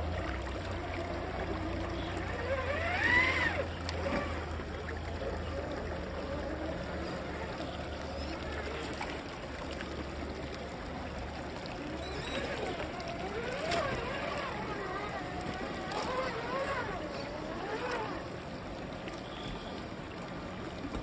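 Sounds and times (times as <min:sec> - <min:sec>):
water sloshing: 0:00.0 - 0:21.0
electric motor whining: 0:01.2 - 0:04.6, 0:11.9 - 0:18.3.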